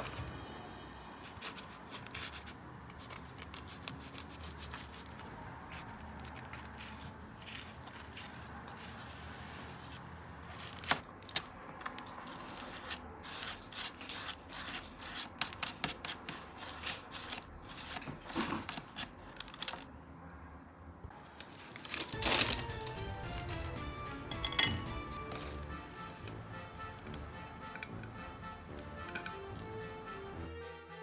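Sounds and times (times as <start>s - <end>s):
garlic rasping on crisp bread: 1.2s - 19.8s
background music: 22.1s - 31.0s.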